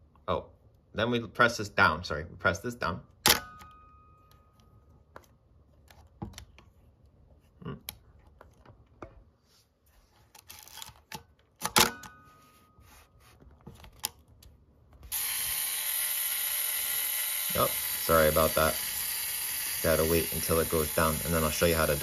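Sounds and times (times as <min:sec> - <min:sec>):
self-timer whirring buzz: 0:15.1 - 0:22.0.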